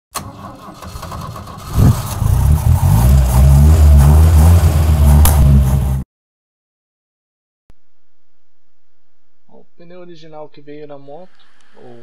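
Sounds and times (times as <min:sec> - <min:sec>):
motorcycle engine starting and running: 0:00.2 - 0:06.0.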